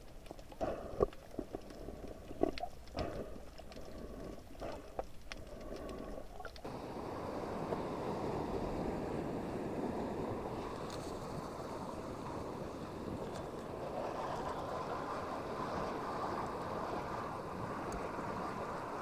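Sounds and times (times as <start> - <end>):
underwater clicks and knocks: 0.0 - 6.6
wind and sea rushing: 5.5 - 19.0.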